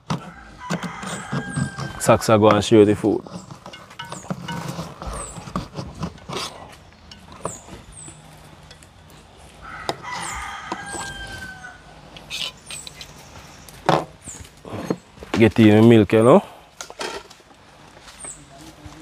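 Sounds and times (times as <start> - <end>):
rooster crowing: 0.1 - 2.2, 9.6 - 12.0.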